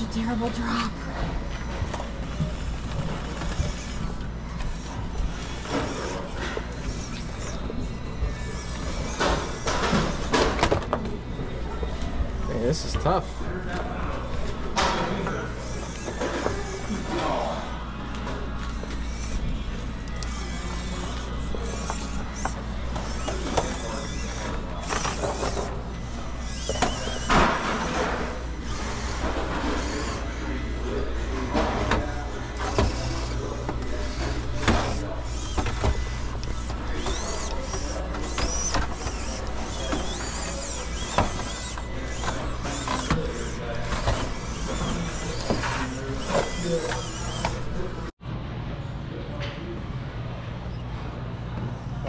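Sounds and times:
small electric motor whirring: 0:01.4 - 0:10.6, 0:14.3 - 0:48.1.

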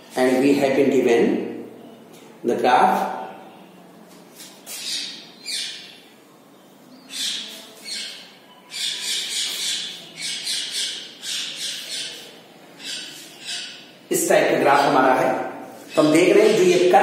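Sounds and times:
marker squeaking on whiteboard: 0:07.1 - 0:13.9, 0:15.8 - 0:17.0.

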